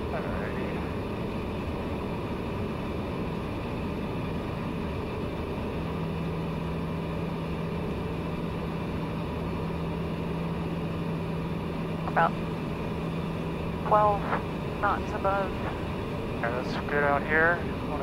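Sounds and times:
turboprop engine and propeller hum: 0.0s - 18.0s.

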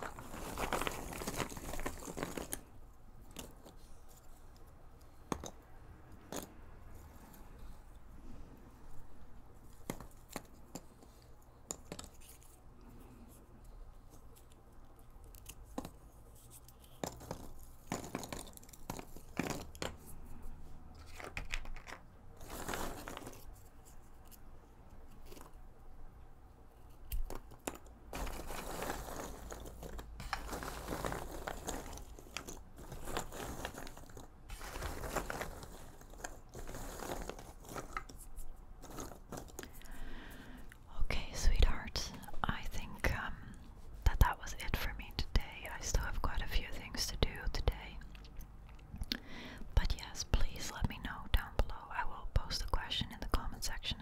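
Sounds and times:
puzzle pieces clicking and rustling: 0.0s - 4.7s, 9.7s - 12.6s, 14.1s - 20.2s, 20.9s - 24.4s, 25.0s - 25.6s, 26.8s - 40.8s.

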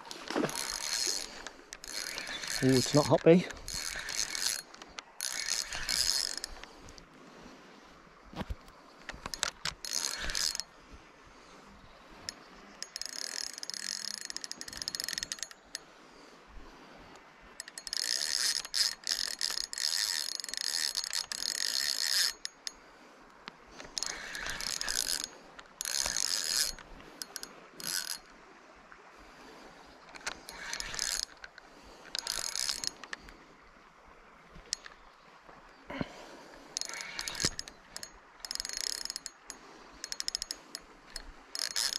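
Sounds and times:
fishing reel drag clicking: 0.1s - 7.1s, 9.0s - 10.8s, 12.1s - 15.9s, 17.1s - 28.4s, 29.9s - 33.4s, 34.6s - 35.0s, 36.5s - 41.9s.

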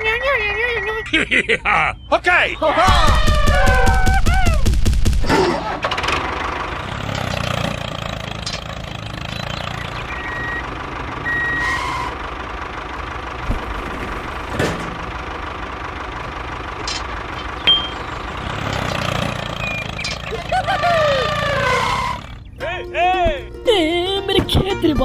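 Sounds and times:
vehicle engine idling: 2.6s - 25.0s
short reversing beeps: 9.8s - 12.0s.

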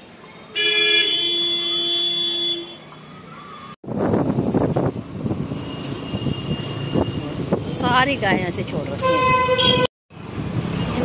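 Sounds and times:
busy street noise: 0.0s - 11.0s
vehicle horn honking: 0.6s - 2.9s, 9.0s - 9.9s.

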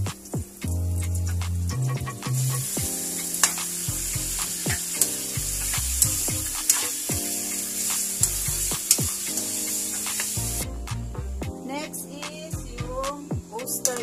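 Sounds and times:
chicken sizzling in a wok: 2.3s - 10.6s.

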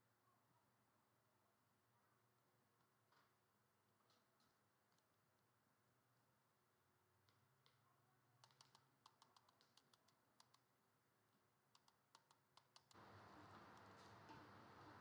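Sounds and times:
steady hiss: 12.9s - 15.0s.

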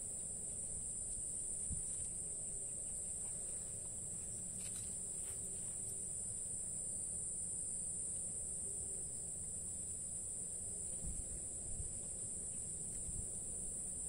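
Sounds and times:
insects chorus: 0.0s - 14.0s.

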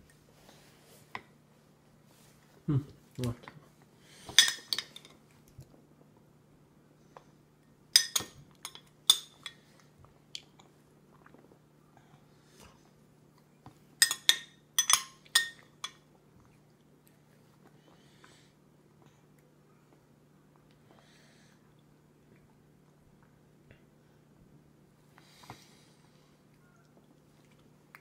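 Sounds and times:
metal spoon clinking on glass: 14.0s - 16.0s.

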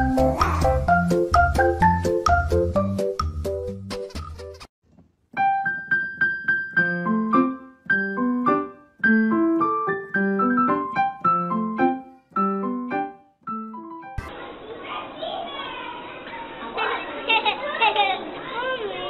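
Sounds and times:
solo piano melody: 5.3s - 14.3s.

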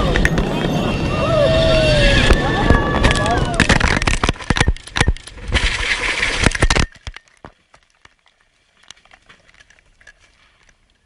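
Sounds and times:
crash with clattering impacts: 2.2s - 7.2s
faint ticks and rustles: 7.2s - 11.0s.

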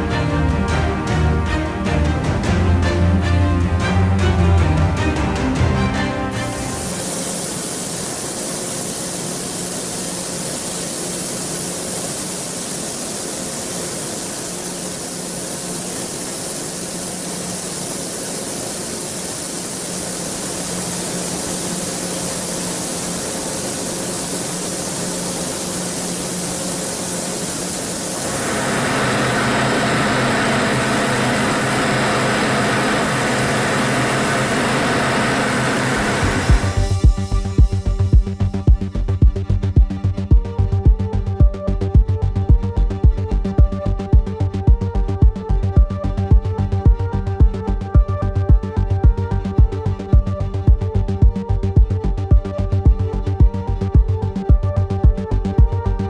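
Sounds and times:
paint spray gun hissing: 6.4s - 37.3s
low steady hum: 6.5s - 56.0s.

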